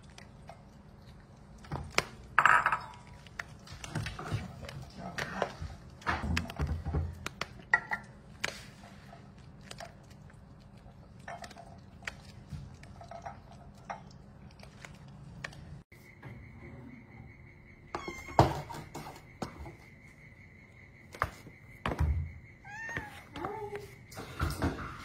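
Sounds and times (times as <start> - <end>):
cat eating from a saucer: 0.0 - 15.8.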